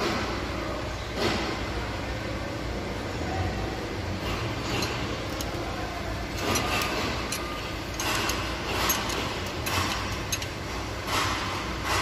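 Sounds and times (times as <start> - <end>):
steady low hum: 0.0 - 12.0
metal tool clicks and scrapes: 6.3 - 12.0.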